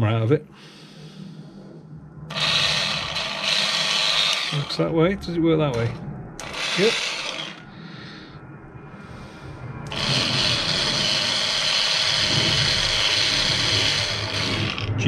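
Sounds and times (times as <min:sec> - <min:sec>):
small motor whirring: 0:02.3 - 0:04.7, 0:06.4 - 0:07.7, 0:09.9 - 0:15.0.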